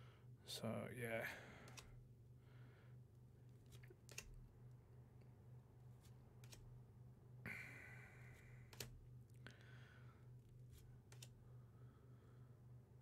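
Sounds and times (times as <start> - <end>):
low steady hum: 0.0 - 13.0
cards clicking and rustling: 1.6 - 2.0, 3.5 - 4.5, 6.0 - 6.8, 8.6 - 9.0, 10.5 - 11.4.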